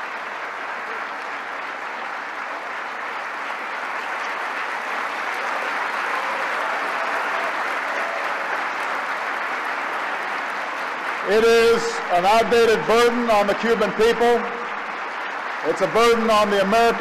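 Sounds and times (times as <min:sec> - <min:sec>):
large audience applauding: 0:00.0 - 0:17.0.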